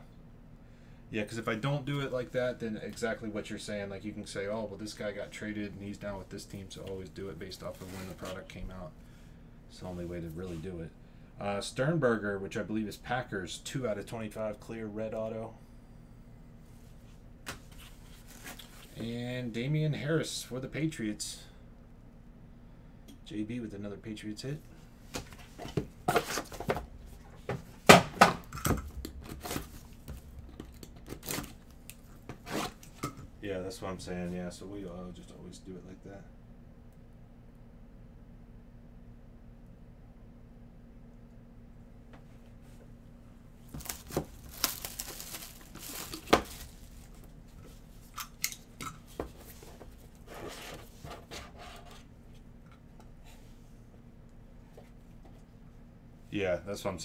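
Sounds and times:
plastic wrap tearing and crinkling: 0:31.0 - 0:32.9, 0:43.7 - 0:47.3
cardboard rustling: 0:43.7 - 0:47.6.

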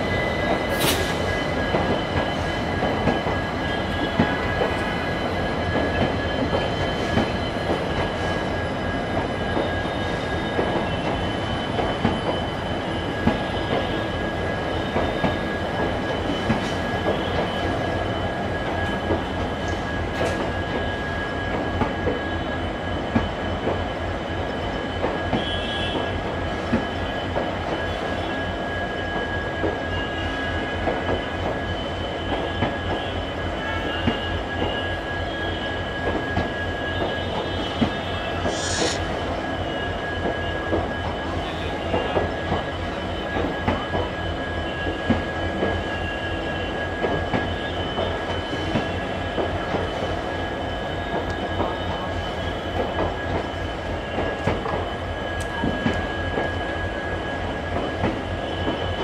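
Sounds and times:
high whine: 0:38.4 - 0:39.1.

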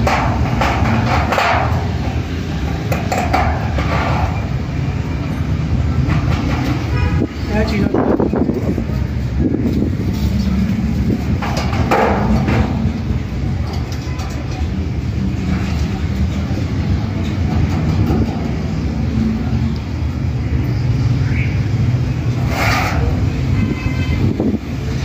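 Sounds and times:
metallic clanks: 0:00.0 - 0:04.8, 0:11.2 - 0:18.8.

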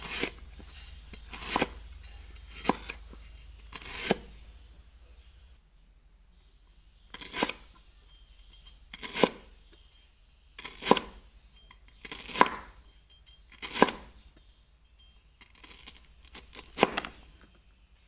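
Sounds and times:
knife slicing stalk on wooden board: 0:02.6 - 0:03.0, 0:03.7 - 0:04.3.

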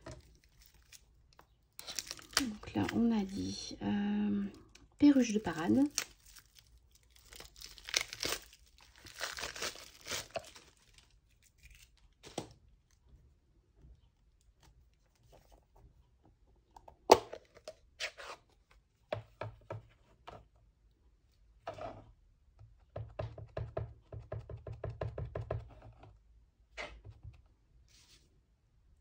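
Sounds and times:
plastic wrap crinkling: 0:00.0 - 0:03.7, 0:04.6 - 0:12.6.

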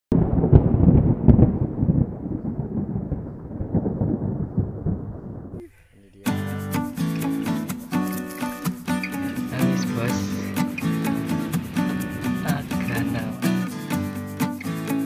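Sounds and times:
thunder crack and rumble: 0:00.1 - 0:05.6
music: 0:06.3 - 0:15.0.

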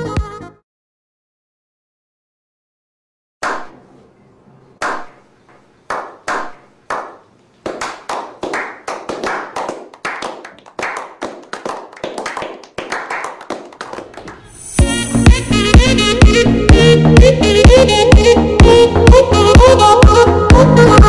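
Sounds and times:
men clapping: 0:05.9 - 0:14.5.

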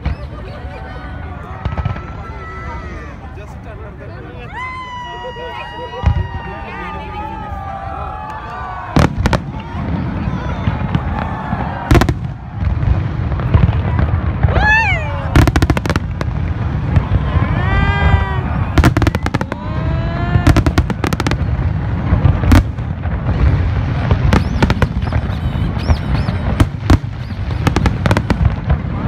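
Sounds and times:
fireworks bursting with bangs and crackles: 0:00.0 - 0:03.7, 0:04.5 - 0:29.0.

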